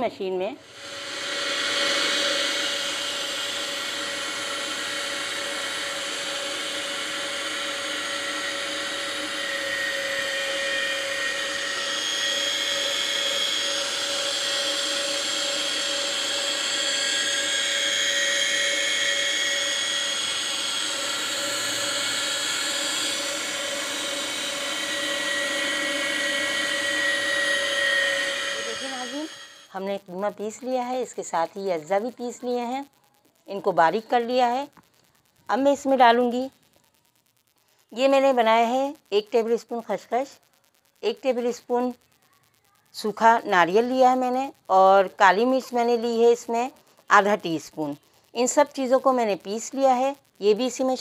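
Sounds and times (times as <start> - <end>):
electric meat grinder whining: 0.6 - 29.9.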